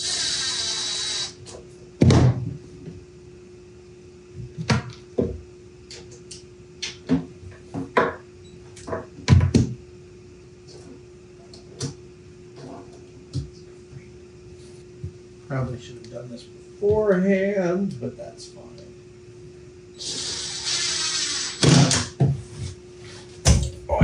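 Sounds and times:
cordless drill whining: 0:00.0 - 0:01.4
heavy thumps: 0:23.4 - 0:24.0.

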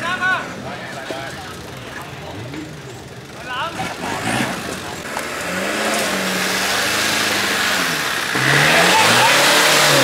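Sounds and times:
truck engine revving under load: 0:03.7 - 0:10.0.

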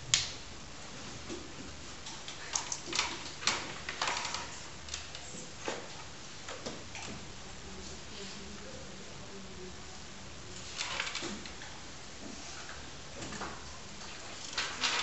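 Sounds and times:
low room hum: 0:00.0 - 0:15.0
pens and paper rustling: 0:00.9 - 0:07.2, 0:10.4 - 0:15.0.

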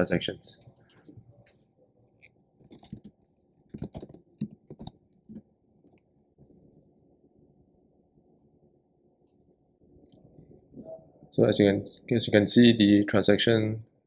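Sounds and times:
keyboard keys clicking: 0:03.7 - 0:05.0.

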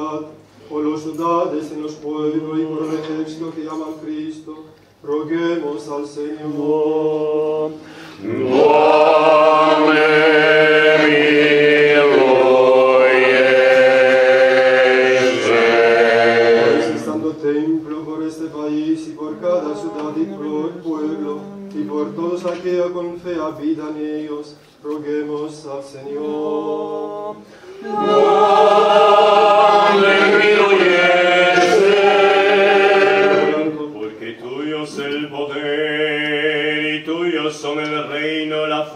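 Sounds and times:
choir singing: 0:06.5 - 0:17.7, 0:18.9 - 0:22.2, 0:26.0 - 0:38.9
voices chanting long notes: 0:08.2 - 0:17.2, 0:26.1 - 0:33.9.

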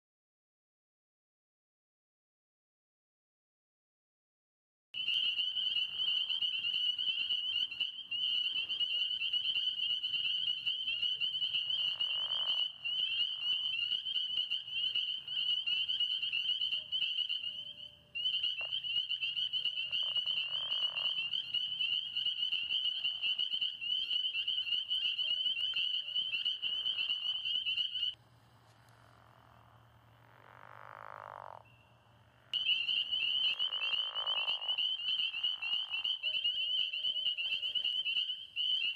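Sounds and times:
frogs trilling: 0:05.0 - 0:28.2, 0:28.8 - 0:38.9.

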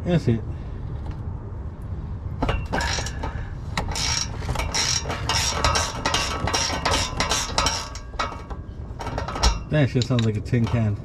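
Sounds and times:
ratchet clinking on bolt: 0:02.4 - 0:10.9.

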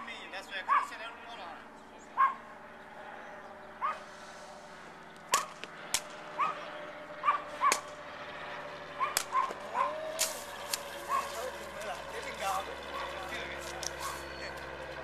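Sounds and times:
dog barking: 0:00.7 - 0:01.0, 0:02.2 - 0:02.4, 0:03.8 - 0:04.0, 0:06.4 - 0:07.8, 0:09.0 - 0:10.0, 0:11.1 - 0:11.4, 0:14.0 - 0:14.3.

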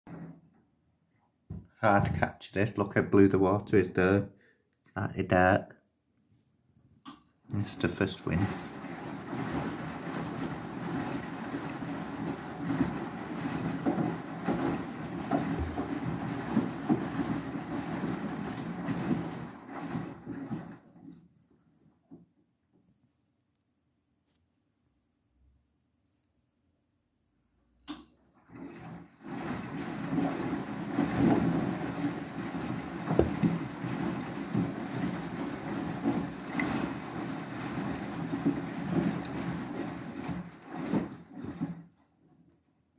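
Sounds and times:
washing machine drum sloshing: 0:00.1 - 0:04.1, 0:07.5 - 0:22.3, 0:27.9 - 0:42.9
washing machine running noise: 0:00.1 - 0:04.2, 0:07.1 - 0:22.4, 0:27.8 - 0:42.9.

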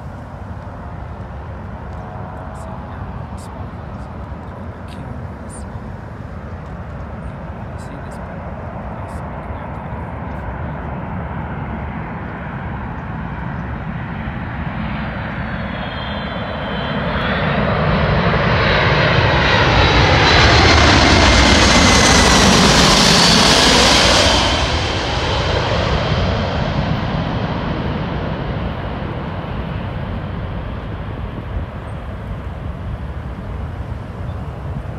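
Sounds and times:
jet engines rumbling and whining overhead: 0:00.0 - 0:34.9.

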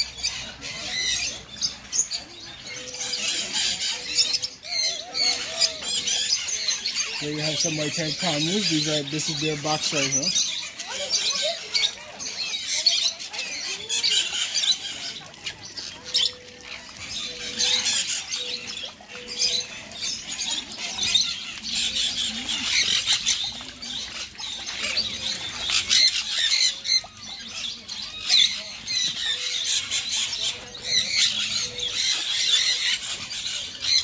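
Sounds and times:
birds chirping and squawking: 0:00.0 - 0:34.0.

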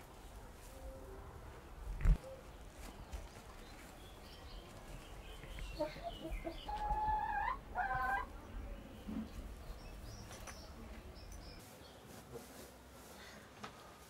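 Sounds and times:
hens clucking: 0:05.4 - 0:08.4.

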